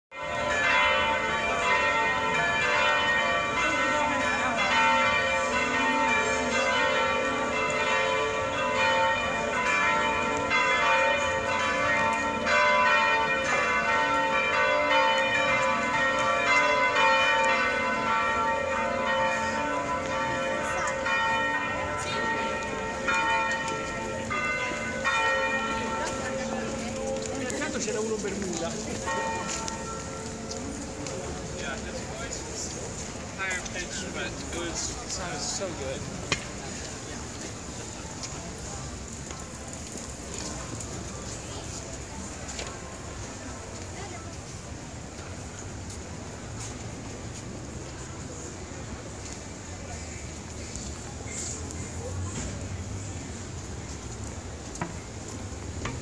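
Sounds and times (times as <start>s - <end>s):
church bells pealing: 0.1s - 36.2s.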